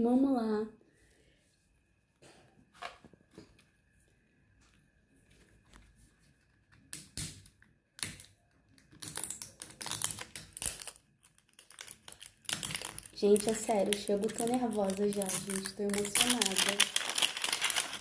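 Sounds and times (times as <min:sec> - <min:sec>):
plastic toy packaging crinkling: 0:08.8 - 0:18.0.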